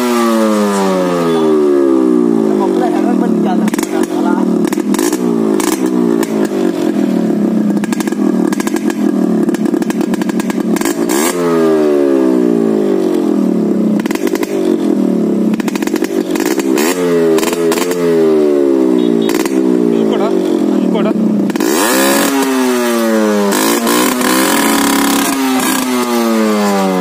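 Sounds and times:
exhaust cracks: 0.0 - 27.0
motorcycle engine revving: 0.0 - 27.0.

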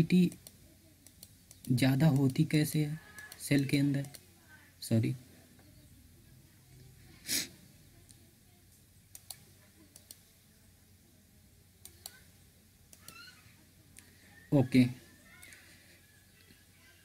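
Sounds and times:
computer mouse clicks: 0.2 - 2.4, 3.1 - 4.2, 9.1 - 10.3, 11.8 - 12.2, 12.9 - 13.3.

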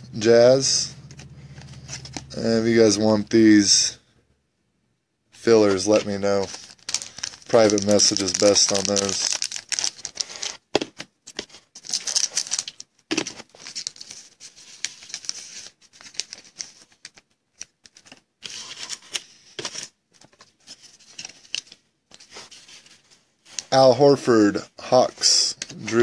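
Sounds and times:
cards being handled: 0.9 - 2.5, 5.5 - 23.8, 25.2 - 26.0
foil wrapper crinkling and tearing: 5.7 - 10.6, 11.6 - 19.2.

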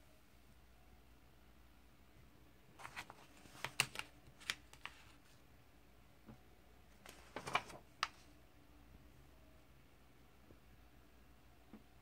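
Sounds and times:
comic book pages turning: 2.8 - 5.4, 7.0 - 8.2
paper rustling and flicking: 2.8 - 5.4, 7.0 - 8.2.

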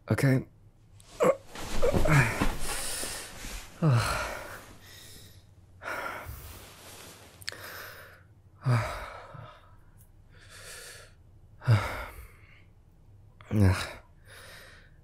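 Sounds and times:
man breathing out heavily: 2.0 - 6.7.

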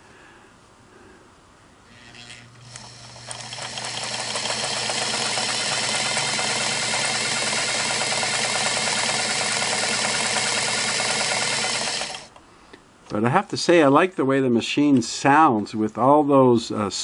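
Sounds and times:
sewing machine stitching clatter: 2.2 - 12.3.

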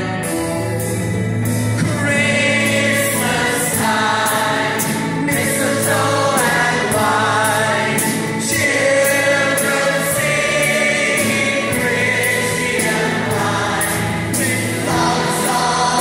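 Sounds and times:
choir singing held notes: 0.0 - 16.0
orchestral accompaniment: 0.0 - 16.0.

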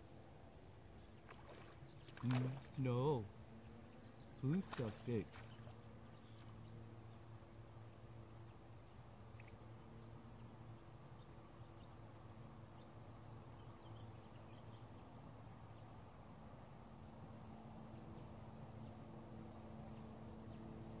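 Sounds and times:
faint low hum: 0.0 - 21.0.

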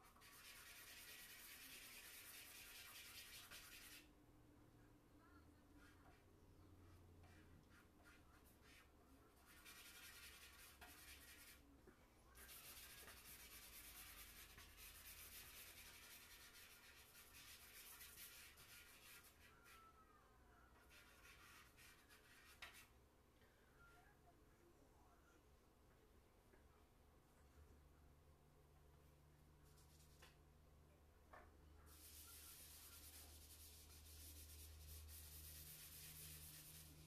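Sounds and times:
charcoal scratching on paper: 0.0 - 4.1, 5.7 - 11.6, 12.4 - 20.0, 20.7 - 22.9, 31.8 - 37.0.

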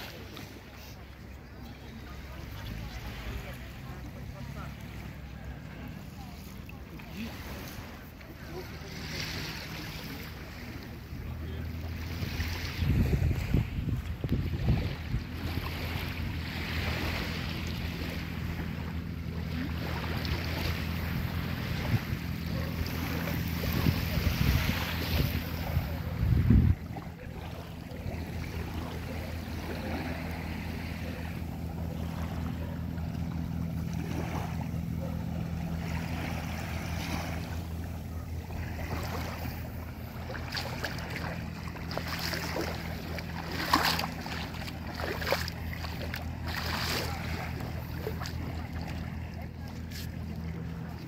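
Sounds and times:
distant voices: 0.0 - 51.0
small waves lapping: 0.0 - 51.0
low hum: 9.8 - 51.0
wind gusting on microphone: 12.2 - 15.7, 23.4 - 27.4.

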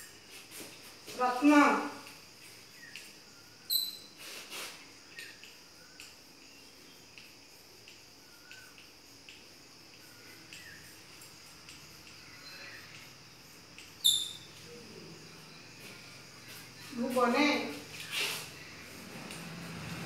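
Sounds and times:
chalk squeaking chirps: 3.7 - 5.5, 14.0 - 14.7, 17.8 - 18.8.

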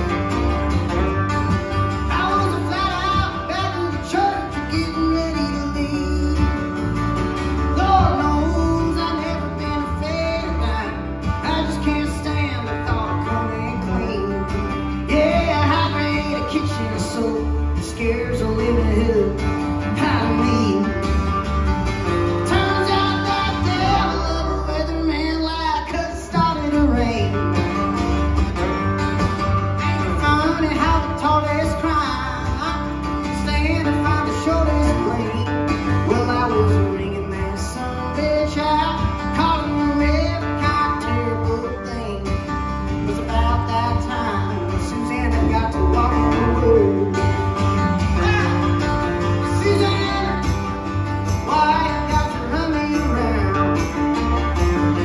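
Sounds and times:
acoustic guitar: 0.0 - 55.0
electric bass line: 0.0 - 55.0
slide guitar gliding notes: 0.0 - 55.0.

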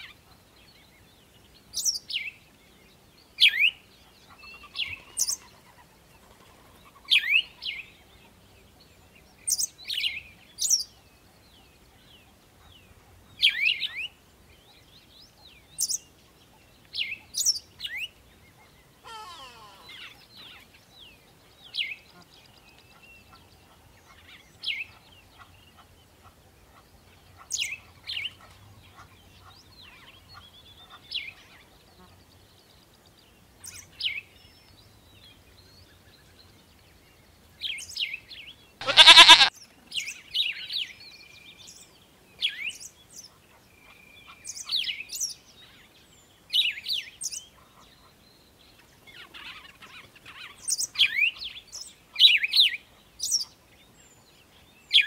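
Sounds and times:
birds chirping: 38.8 - 39.5
longer lower bird call: 38.8 - 39.5.

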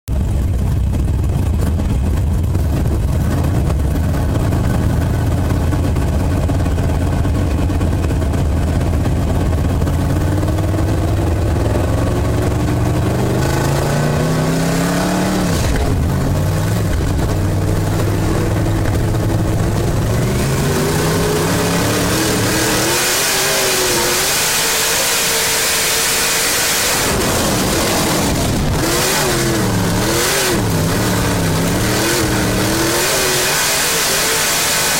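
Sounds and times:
race car engine revving: 0.1 - 34.9
track noise: 0.1 - 34.9
wind rush: 15.3 - 33.0.

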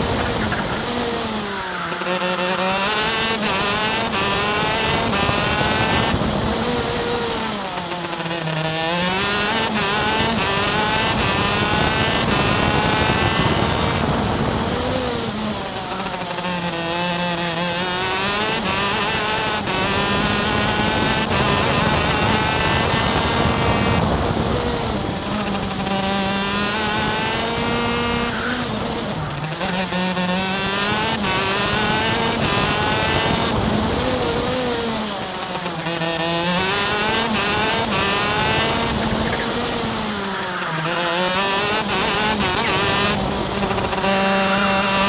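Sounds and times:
kart engine at high revs: 0.0 - 45.0.

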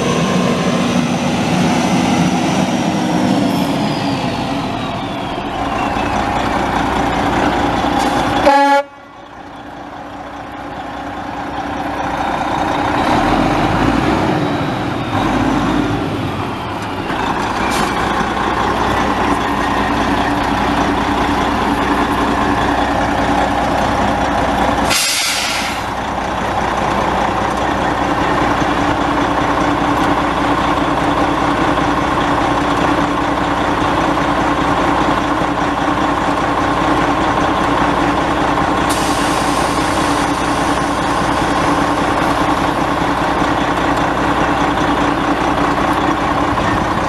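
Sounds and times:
diesel truck idling: 0.0 - 47.0
air release hiss: 24.8 - 26.0, 38.9 - 41.1.

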